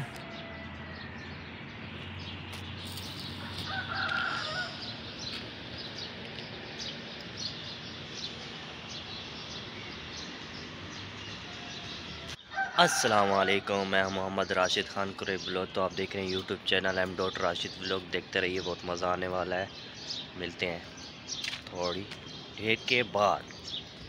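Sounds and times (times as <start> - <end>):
bird chirps: 0.0 - 12.7, 13.6 - 24.0
street ambience: 0.0 - 24.0
loud bird call: 2.8 - 5.4.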